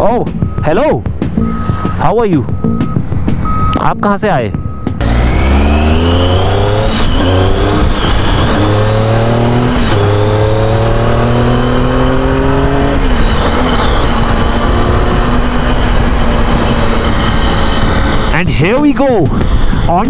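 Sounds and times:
motorcycle engine accelerating: 4.9s - 20.0s.

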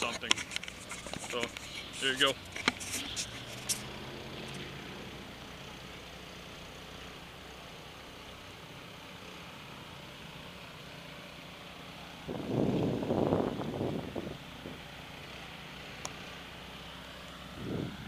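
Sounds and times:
outdoor background hum and hiss: 0.0s - 18.0s
wind buffeting microphone: 12.3s - 14.8s, 17.5s - 18.0s.

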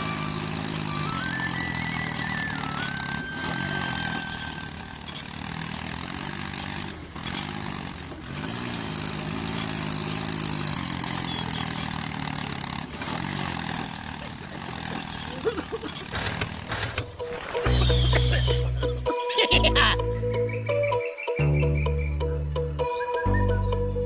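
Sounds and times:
tractor engine revving: 0.0s - 19.1s.

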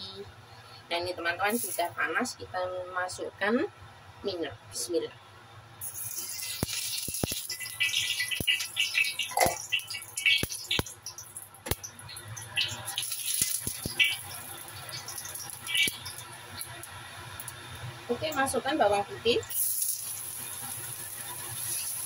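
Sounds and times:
oil sizzling in a wok: 1.4s - 2.0s, 5.8s - 22.0s.

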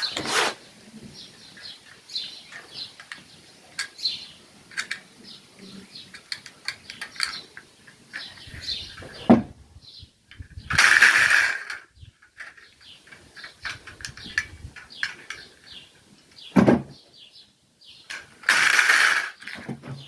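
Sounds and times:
rasping scrape: 0.0s - 0.6s
light metal clicks and rattles: 1.6s - 5.1s, 6.0s - 8.7s, 10.3s - 16.4s.

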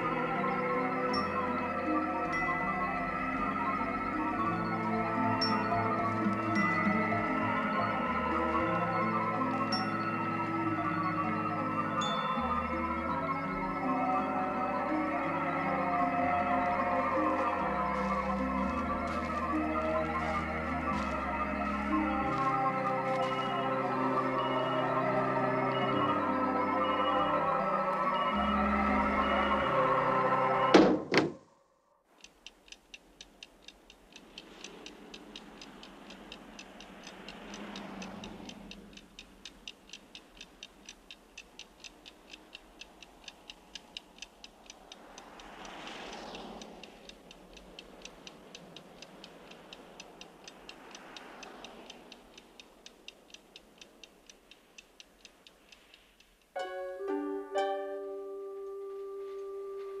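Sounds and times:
clock ticking: 0.0s - 26.0s, 32.0s - 60.0s
faint slow swells of sound: 0.0s - 30.7s, 31.4s - 60.0s
music with plucked notes: 56.6s - 60.0s.

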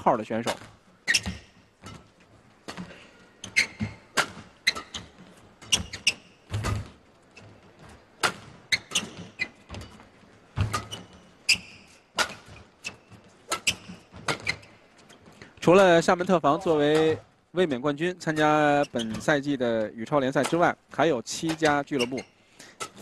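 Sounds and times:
shoes squeaking: 0.0s - 19.5s, 20.3s - 23.0s
rackets hitting shuttlecock: 3.8s - 5.9s, 12.1s - 14.6s.

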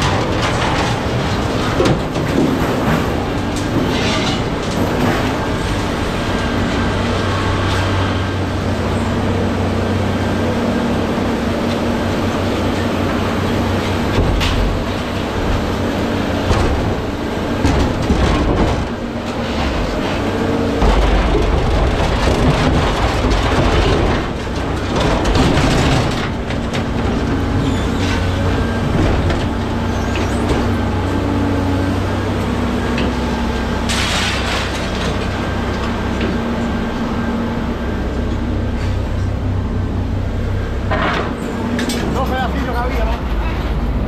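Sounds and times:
scrap metal crashing: 0.0s - 9.2s, 12.2s - 31.5s, 33.5s - 36.7s
engine humming: 0.0s - 44.0s.

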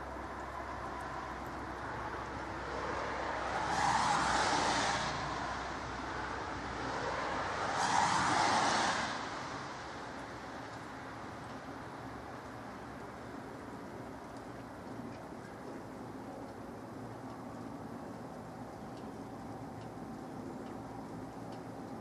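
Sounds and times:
falling wet snow hiss: 0.0s - 15.1s
tyres hissing on wet road: 0.0s - 22.0s.

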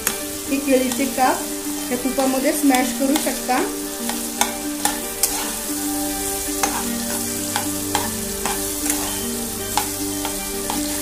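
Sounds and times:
frying hiss: 0.0s - 11.0s
spatula tapping and scraping pan: 1.8s - 5.7s, 6.5s - 11.0s.

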